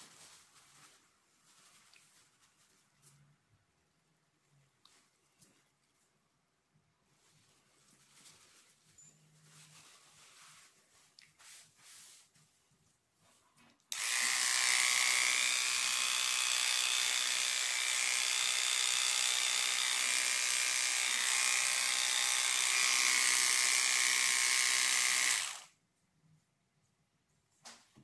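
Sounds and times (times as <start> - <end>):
electric hair clippers buzzing: 13.9 - 25.7.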